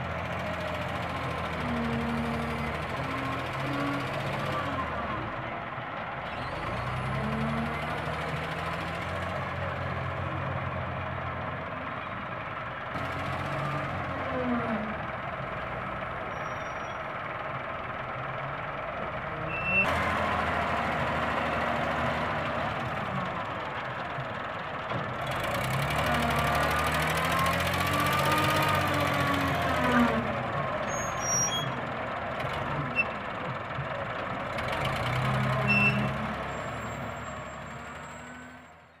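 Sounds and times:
tractor diesel idling: 0.0 - 39.0
wheel loader diesel engine revving: 0.0 - 39.0.

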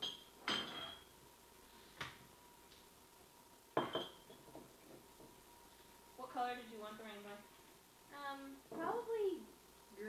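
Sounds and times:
glassware clinking on countertop: 0.0 - 1.1, 3.8 - 4.6.

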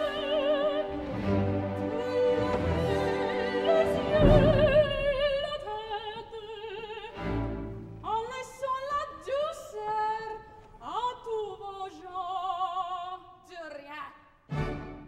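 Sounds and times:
orchestra playing: 0.0 - 5.6, 14.5 - 15.0
woman singing opera: 0.0 - 7.4, 8.0 - 14.1.

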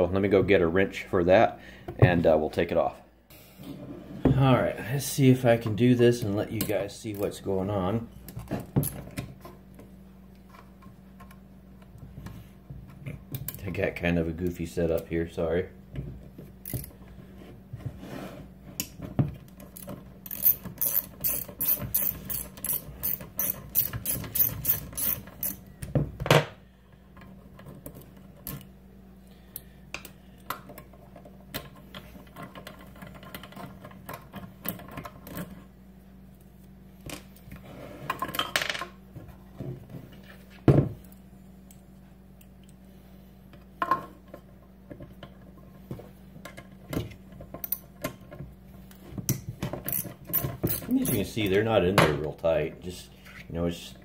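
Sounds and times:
socket ratchet clicking: 20.3 - 25.6.

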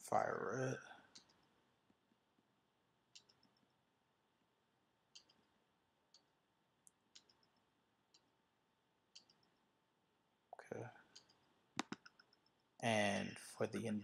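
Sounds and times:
computer mouse clicks: 3.1 - 3.6, 5.2 - 5.5, 7.1 - 8.3, 9.2 - 9.6, 11.1 - 12.6.

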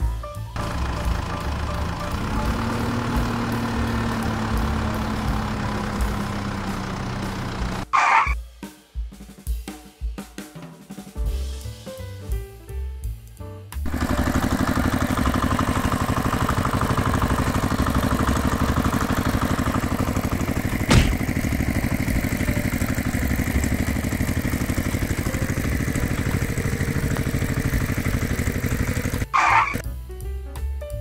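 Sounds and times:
engine running: 0.6 - 8.4, 13.8 - 29.8
short high-pitched blip: 8.0 - 8.4.

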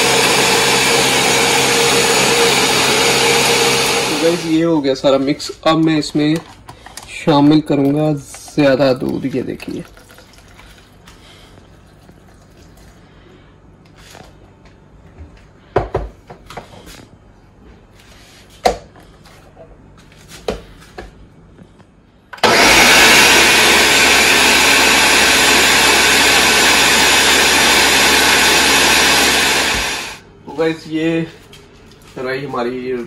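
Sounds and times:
blender running at high speed: 0.0 - 4.6, 22.4 - 30.3.

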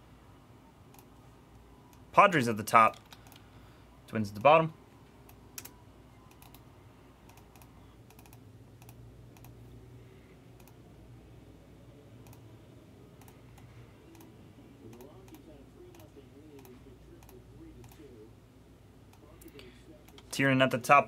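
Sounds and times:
low steady hum: 0.0 - 21.0
computer mouse and keyboard clicks: 2.9 - 3.4, 5.3 - 6.6, 7.3 - 9.6.

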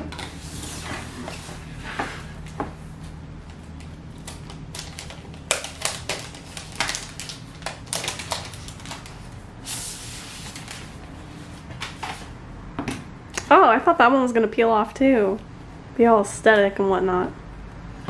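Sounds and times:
paper peeling with crackling clicks: 3.8 - 9.4.

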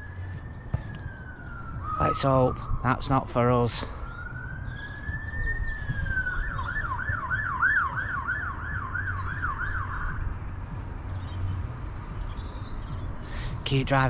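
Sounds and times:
police siren wailing and yelping: 0.1 - 10.2.

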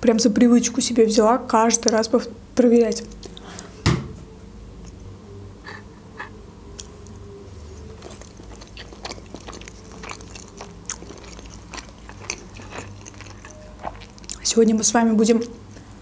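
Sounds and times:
close chewing with mouth clicks: 3.0 - 3.6, 5.7 - 14.7, 15.3 - 16.0.

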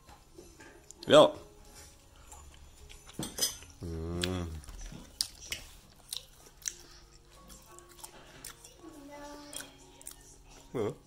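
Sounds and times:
chewing: 1.7 - 11.0
cutlery clicking against plates: 2.9 - 3.8
person humming mmm: 3.8 - 5.0, 10.7 - 11.0.

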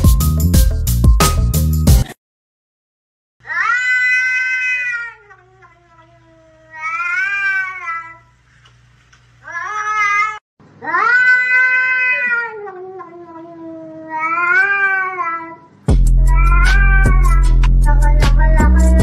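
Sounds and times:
cat meowing: 3.5 - 8.2, 9.4 - 15.6, 16.2 - 18.7.

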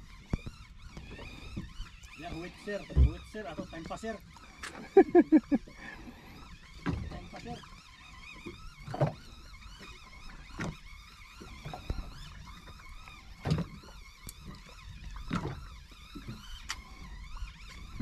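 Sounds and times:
boat engine humming: 0.0 - 18.0.

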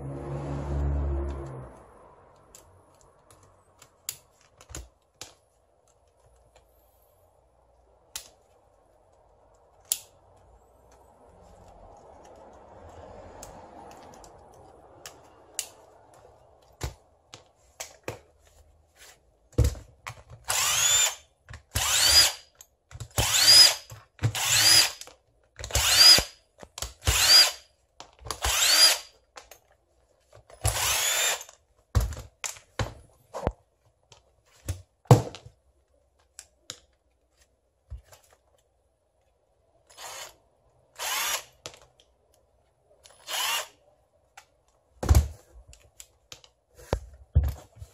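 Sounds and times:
cordless driver whining: 21.8 - 22.4, 28.4 - 29.0, 43.2 - 43.7.

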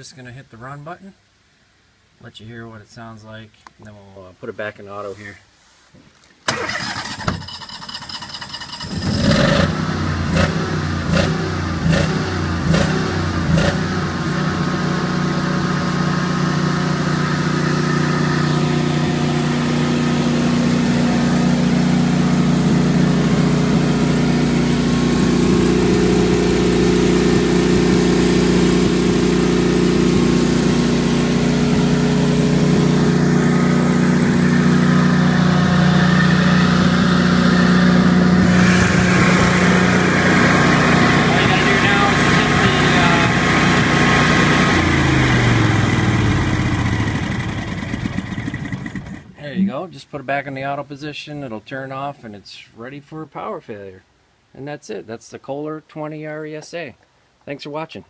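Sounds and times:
generator engine running: 6.5 - 49.7.

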